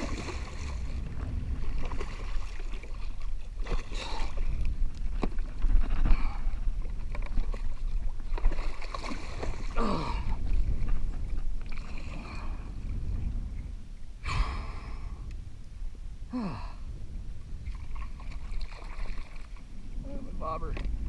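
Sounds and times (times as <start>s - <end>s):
water sloshing against kayak hull: 0.0s - 13.7s, 17.4s - 20.0s
wind rumbling on microphone: 0.0s - 21.0s
sharp splash: 8.3s - 9.8s
person sighing: 9.7s - 10.4s, 14.2s - 15.2s, 16.3s - 16.9s.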